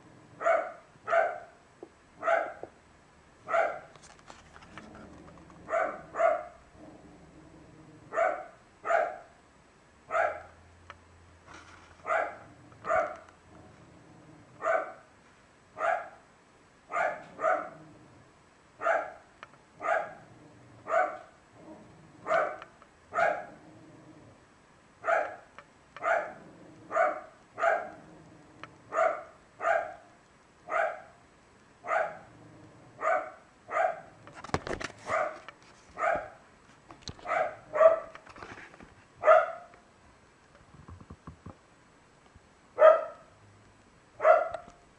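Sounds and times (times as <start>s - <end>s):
dog barking: 0.4s - 1.6s, 2.2s - 2.7s, 3.5s - 3.9s, 5.7s - 6.6s, 8.1s - 9.3s, 10.1s - 10.6s, 12.0s - 13.2s, 14.6s - 15.1s, 15.8s - 16.2s, 16.9s - 17.8s, 18.8s - 20.3s, 20.9s - 21.3s, 22.2s - 23.6s, 25.0s - 28.0s, 28.9s - 30.1s, 30.7s - 31.2s, 31.8s - 32.3s, 33.0s - 34.1s, 35.1s - 36.4s, 37.2s - 38.2s, 39.2s - 39.7s, 42.8s - 43.3s, 44.2s - 44.7s.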